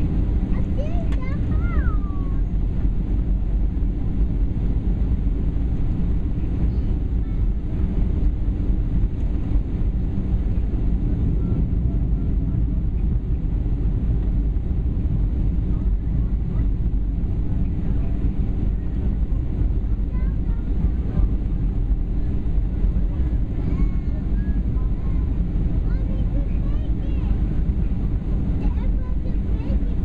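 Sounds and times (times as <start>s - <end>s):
airplane cabin noise: 0.0s - 30.0s.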